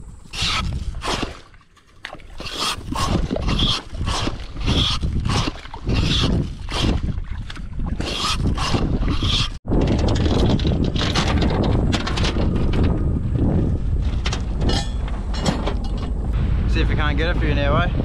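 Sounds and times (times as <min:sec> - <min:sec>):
wind on microphone: 0:00.0 - 0:01.3, 0:02.4 - 0:18.0
bare feet squelching in mud: 0:00.2 - 0:09.6.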